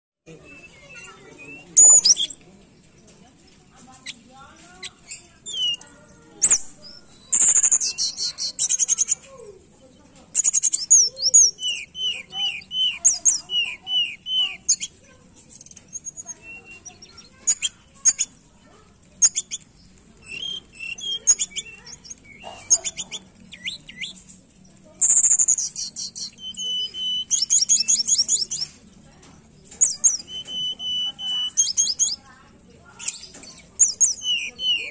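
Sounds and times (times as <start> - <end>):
bird chirping and whistling: 0.4 - 2.4, 5.0 - 9.2, 10.4 - 15.0, 19.2 - 19.6, 20.2 - 24.2, 25.0 - 28.8, 29.8 - 32.2, 33.0 - 34.9.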